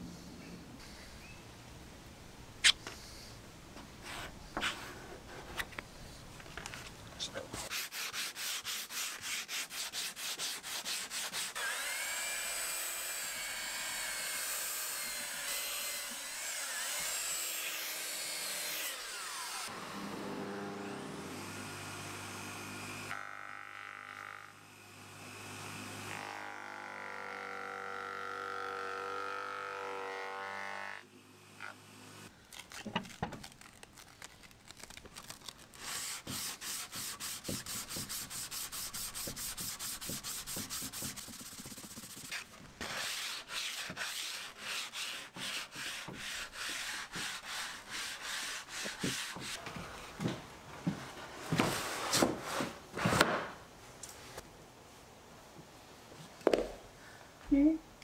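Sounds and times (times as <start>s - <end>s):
hand sanding wood: 7.6s - 11.9s, 35.8s - 49.8s.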